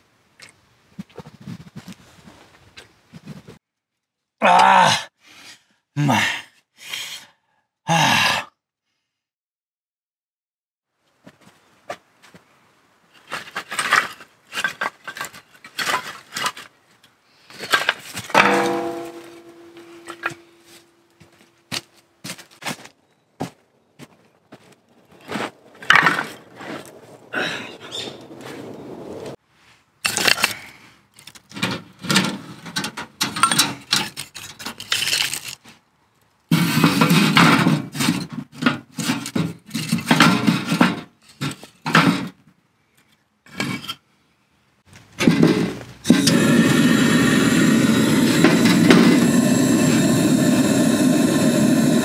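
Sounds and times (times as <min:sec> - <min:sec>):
firewood sticks knocking and clattering: 0:13.1 - 0:22.8, 0:24.6 - 0:27.0, 0:30.0 - 0:35.8, 0:36.5 - 0:42.4, 0:44.9 - 0:46.4
wooden kindling clattering on metal: 0:13.3 - 0:16.7, 0:17.7 - 0:20.8, 0:36.8 - 0:42.4
single ringing note: 0:18.4 - 0:21.0
gas torch hissing: 0:46.0 - 0:52.0.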